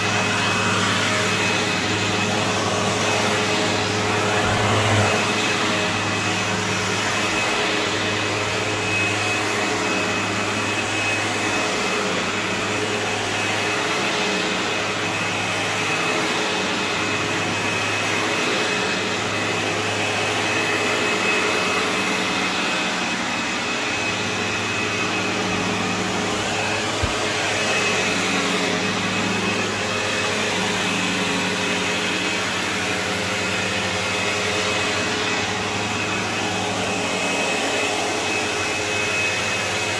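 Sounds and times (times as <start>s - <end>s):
high motor whine: 0.0s - 39.9s
vacuum cleaner on carpet: 0.0s - 39.9s.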